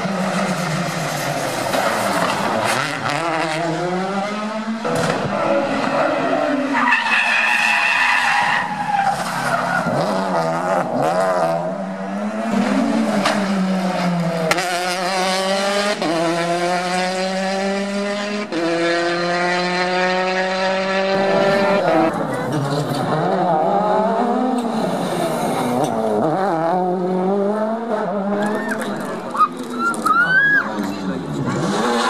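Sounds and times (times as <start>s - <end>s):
rally car engines revving: 0.0s - 32.0s
tyre squeal: 28.4s - 30.8s.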